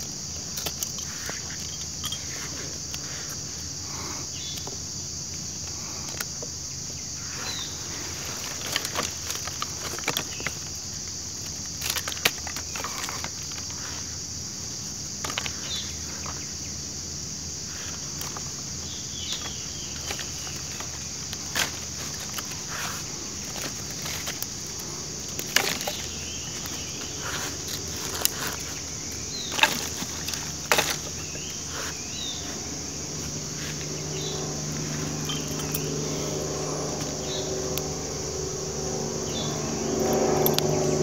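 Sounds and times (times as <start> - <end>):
insects buzzing: 0.0 - 41.0
twigs snapping and rustling: 8.0 - 13.9, 19.2 - 37.9.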